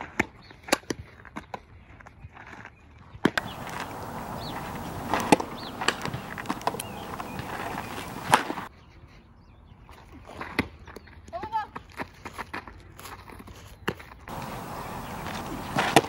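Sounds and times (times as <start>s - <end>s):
steady outdoor hiss: 3.4s - 8.7s, 14.3s - 16.0s.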